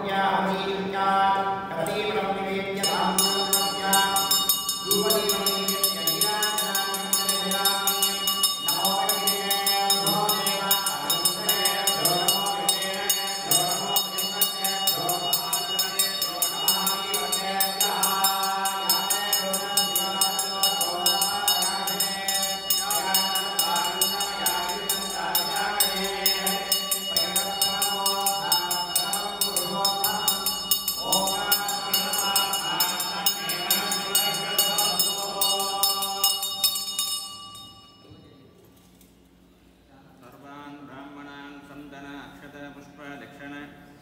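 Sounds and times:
devotional chanting: 0.0 - 38.3, 39.9 - 44.0
steady drone: 2.8 - 36.9
small bells jingling: 2.8 - 38.2.

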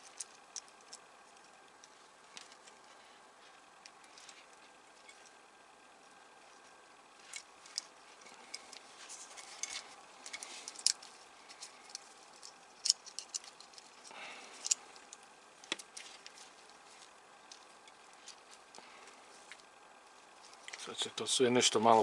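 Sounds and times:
plastic parts clicking: 9.4 - 16.4.

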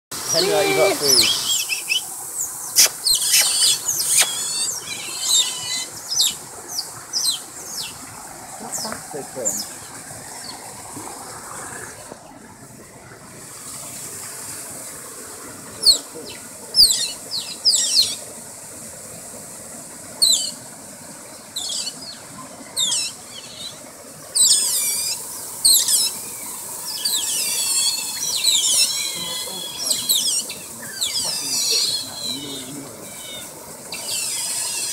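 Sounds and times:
otters squeaking and chirping: 2.7 - 8.0, 27.0 - 34.9.

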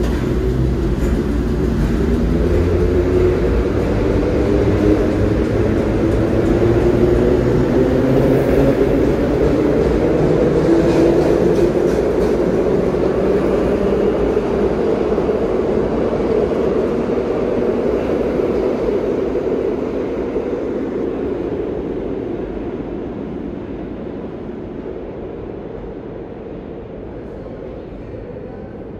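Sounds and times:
subway train pulling out: 0.0 - 28.9.

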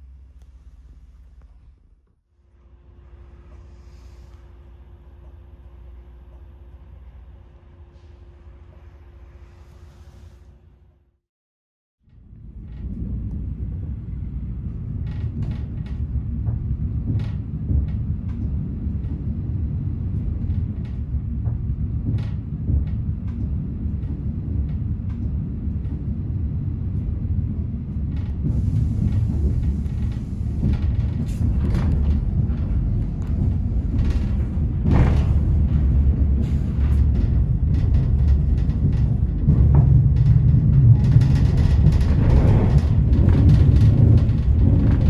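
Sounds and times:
train engine rumble: 0.0 - 11.0, 12.0 - 45.0
wheels clacking over rail joints: 27.8 - 45.0.

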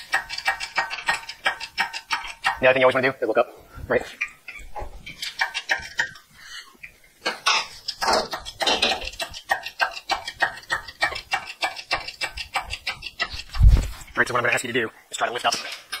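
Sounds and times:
rapid metallic clicking: 0.0 - 2.7, 7.4 - 13.7.

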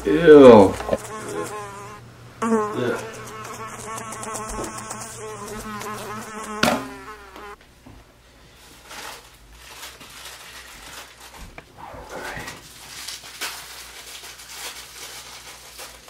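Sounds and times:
housefly buzzing: 0.4 - 7.6
sharp thump: 6.6 - 6.9.

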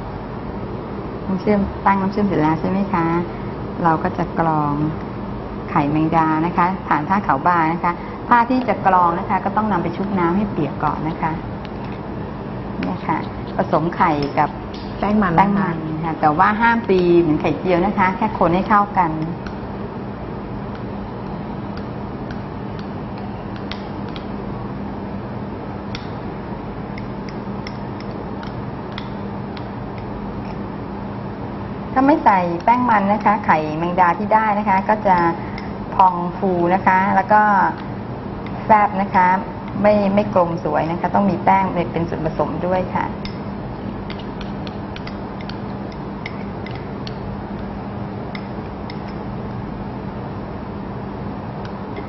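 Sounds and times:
low hum and hiss: 0.0 - 52.0
soft wet clicks: 21.7 - 24.3.

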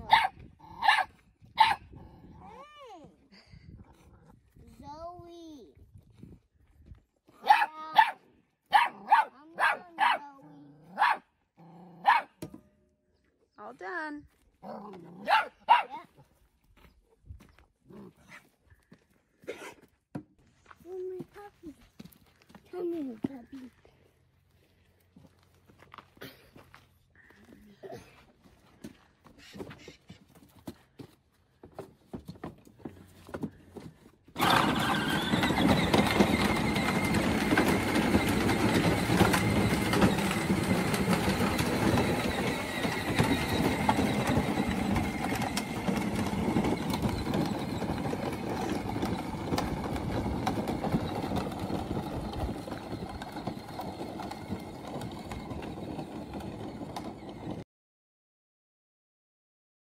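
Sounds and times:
plastic wheels crunching gravel: 20.5 - 57.6
electric motor whine: 34.4 - 55.8.

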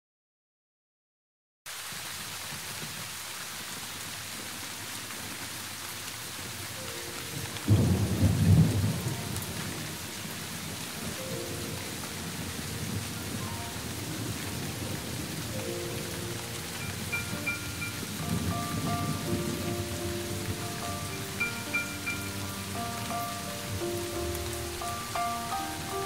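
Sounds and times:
steady rain falling: 1.7 - 26.0
low rumble of thunder: 7.3 - 21.5.

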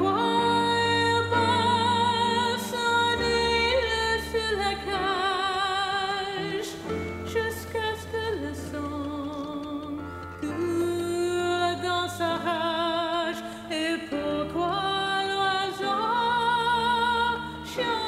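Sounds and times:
person singing with vibrato: 0.0 - 18.0.

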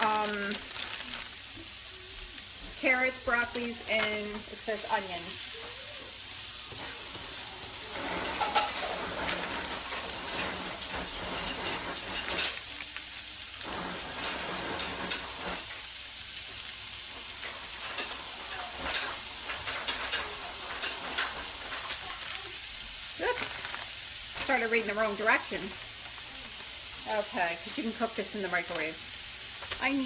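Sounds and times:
garlic sizzling in oil: 0.0 - 30.0
pan clicks and scrapes: 7.9 - 12.6.

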